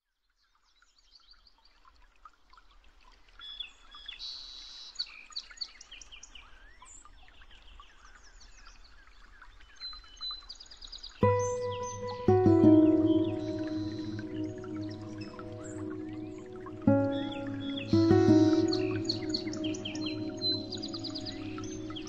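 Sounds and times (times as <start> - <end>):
songbirds chirping: 11.2 - 22.0.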